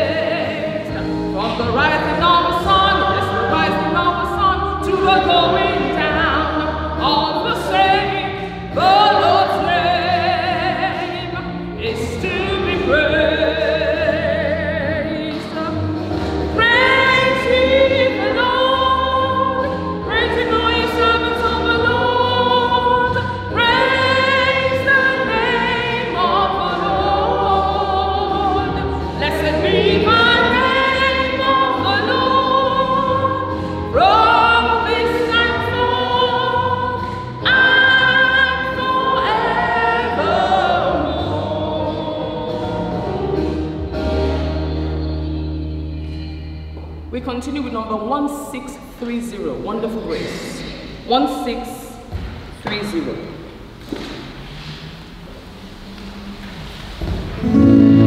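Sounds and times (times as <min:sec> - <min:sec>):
choir singing held notes: 0:00.0 - 0:46.1, 0:57.4 - 0:58.0
low accompaniment: 0:54.2 - 0:58.0.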